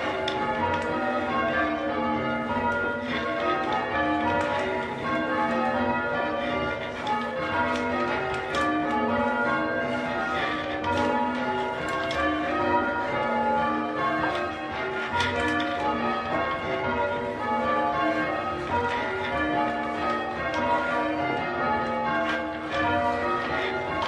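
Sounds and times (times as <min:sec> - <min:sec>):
church bells ringing changes: 0:00.0 - 0:24.0.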